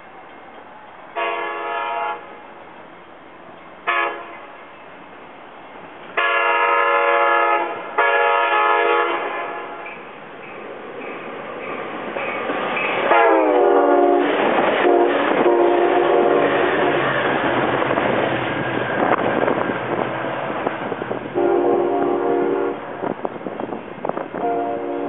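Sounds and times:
train cars rushing and clattering: 0.0 - 25.0
train horn: 1.2 - 2.4, 3.8 - 4.5, 6.2 - 10.0, 13.1 - 17.0, 21.3 - 22.9, 24.3 - 25.0.

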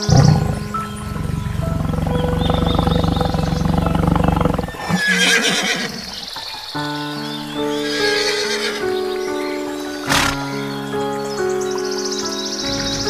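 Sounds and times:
horse calling: 0.0 - 6.6, 10.0 - 10.6
tiger growling: 0.0 - 6.9, 10.0 - 10.6, 12.7 - 13.0
background music: 0.0 - 13.0.

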